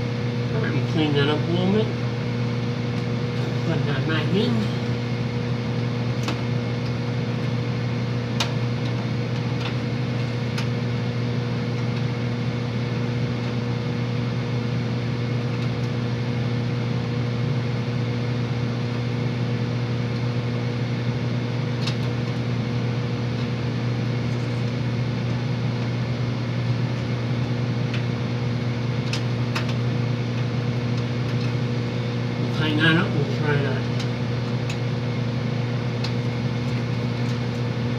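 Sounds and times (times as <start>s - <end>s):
electric motor hum: 0.0s - 37.9s.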